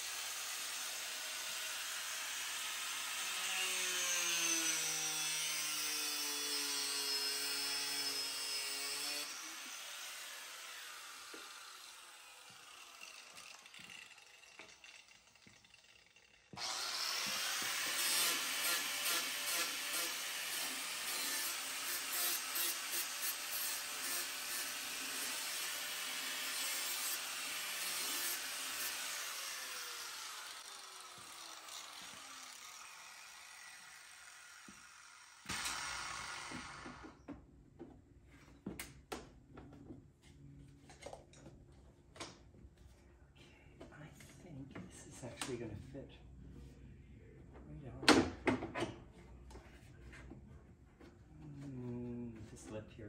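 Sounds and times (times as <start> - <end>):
power tool running and winding down: 0.0 - 37.2.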